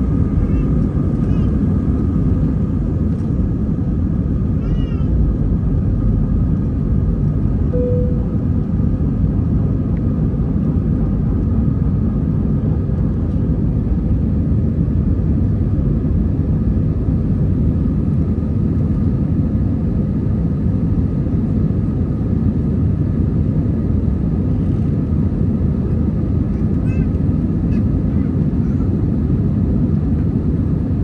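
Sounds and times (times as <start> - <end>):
jet engines at takeoff thrust: 0.0 - 31.0
faint steady tones: 7.7 - 8.5.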